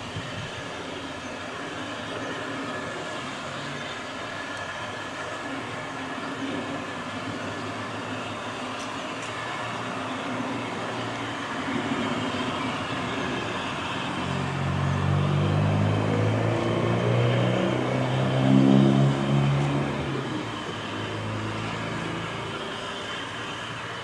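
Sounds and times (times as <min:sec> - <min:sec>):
vehicle engine hum: 0:00.0 - 0:24.0.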